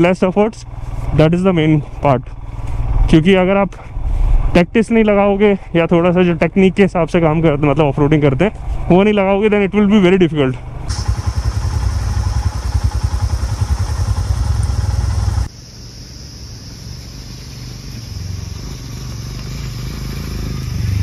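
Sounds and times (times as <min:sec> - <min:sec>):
motorcycle engine idling: 0:00.0 - 0:04.3, 0:04.9 - 0:15.5
approaching motorcycle engine: 0:00.0 - 0:15.5, 0:16.8 - 0:21.0.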